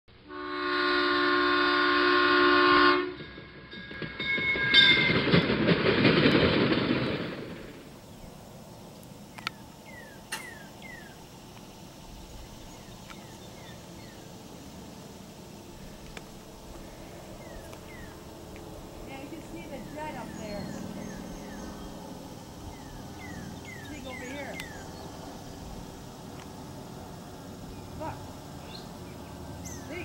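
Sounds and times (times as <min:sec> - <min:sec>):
train horn: 0:00.2 - 0:03.3
train rushing and rumbling: 0:00.2 - 0:30.0
bird chirps: 0:09.3 - 0:11.3, 0:12.3 - 0:14.4, 0:17.3 - 0:18.2, 0:19.8 - 0:25.6, 0:27.7 - 0:30.0.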